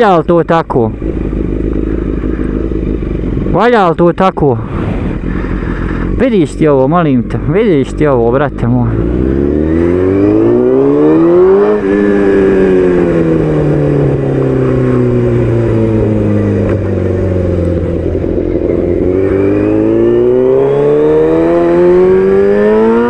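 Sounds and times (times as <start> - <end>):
vehicle engine accelerating: 4.6 - 23.0.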